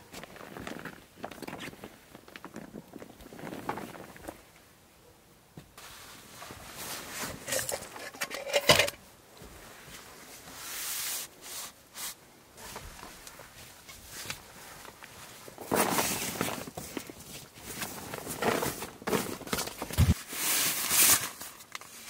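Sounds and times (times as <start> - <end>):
rustles and clicks of handling: 5.5 - 22.0.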